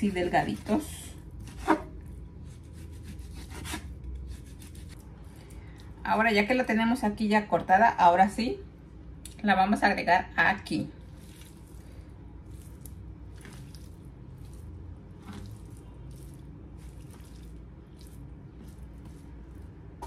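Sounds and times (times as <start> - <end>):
low steady hum: 0.0 - 20.0
wet squishes and slaps of raw meat: 11.1 - 20.0.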